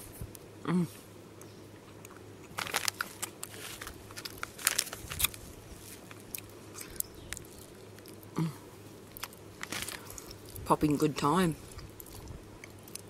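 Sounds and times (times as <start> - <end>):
closed-mouth hum: 0.0 - 13.0
popping candy crackling: 2.4 - 8.4, 9.1 - 10.7.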